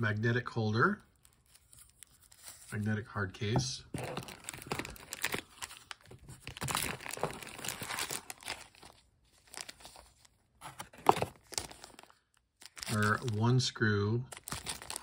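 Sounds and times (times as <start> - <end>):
plastic bag crinkling: 4.0 - 10.3, 14.3 - 15.0.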